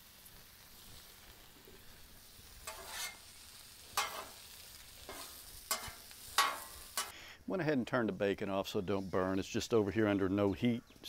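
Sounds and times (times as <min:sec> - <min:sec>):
potatoes sizzling on griddle: 0:00.0 - 0:07.2
metal spatula scraping: 0:02.6 - 0:07.1.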